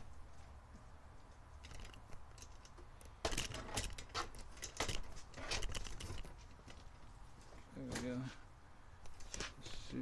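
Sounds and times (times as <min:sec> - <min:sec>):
objects rustling: 0:01.4 - 0:08.4.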